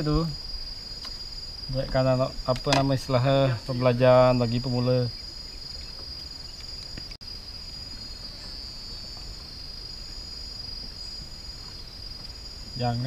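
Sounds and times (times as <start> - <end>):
higher insect trill: 0.0 - 13.0
insects chirring: 0.0 - 13.0.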